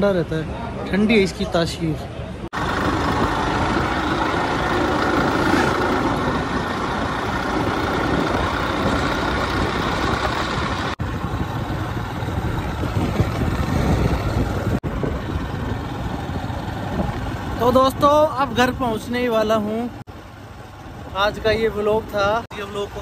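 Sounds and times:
motorcycle engine: 0:02.5 - 0:22.0
wind noise: 0:02.6 - 0:17.6.

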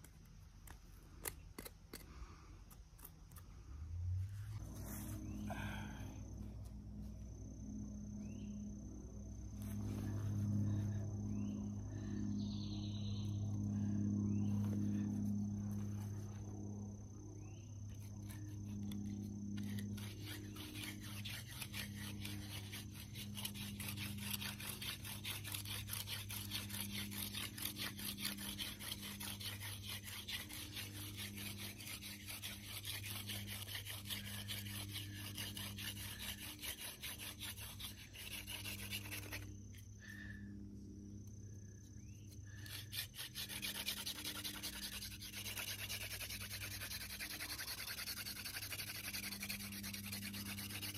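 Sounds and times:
hand drill rasping: 0:18.2 - 0:39.5, 0:42.5 - 0:50.9.

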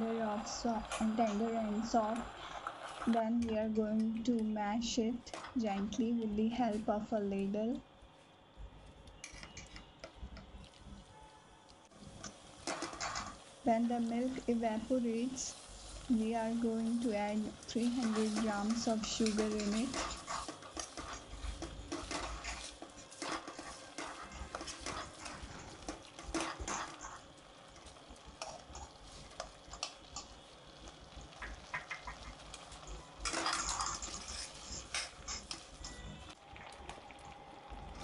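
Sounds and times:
steel spoon scraping a pan: 0:09.2 - 0:09.8, 0:17.7 - 0:27.3, 0:33.2 - 0:36.0.

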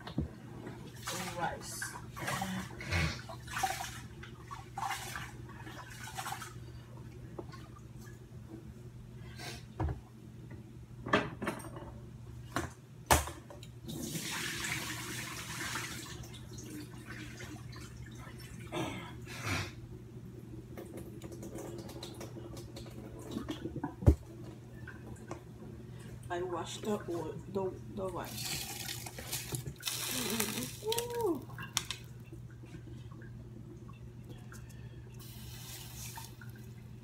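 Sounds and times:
water running from a tap: 0:13.9 - 0:18.6, 0:28.1 - 0:32.3, 0:35.2 - 0:36.9
steady low hum: 0:16.7 - 0:37.0.

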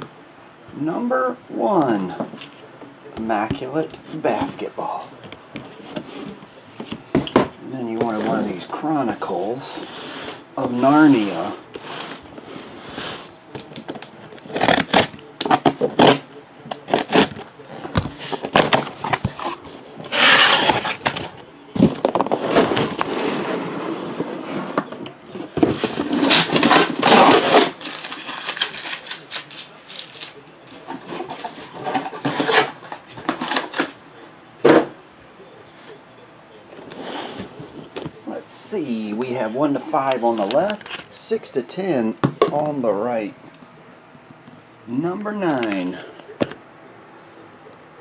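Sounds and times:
cardboard and plastic rustling: 0:09.8 - 0:34.0.

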